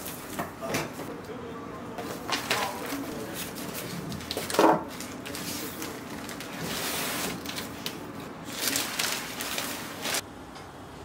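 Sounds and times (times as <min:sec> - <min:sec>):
packaging rustling and scraping: 0:02.0 - 0:10.2.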